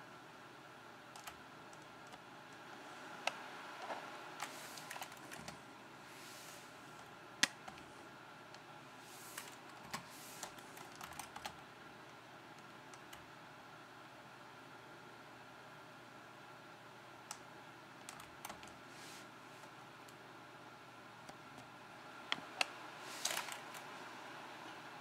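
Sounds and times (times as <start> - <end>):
keyboard keys clicking: 1.1 - 2.2, 9.4 - 11.6, 18.0 - 18.8.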